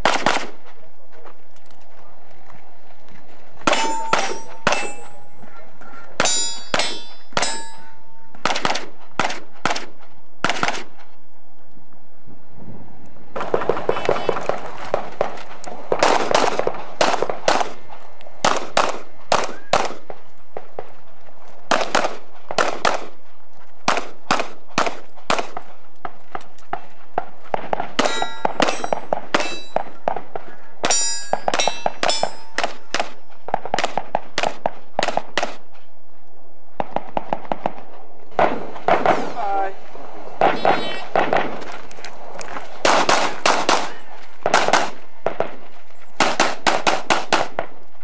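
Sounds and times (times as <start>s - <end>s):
pistol shots: 0.0s - 0.7s, 3.6s - 5.2s, 6.2s - 11.0s, 13.4s - 20.8s, 21.7s - 23.2s, 23.8s - 25.7s, 26.7s - 35.6s, 36.8s - 39.7s, 40.4s - 41.8s, 42.8s - 45.6s, 46.2s - 47.8s
steel targets ringing: 3.7s - 5.5s, 6.2s - 8.4s, 28.0s - 29.9s, 30.8s - 32.9s.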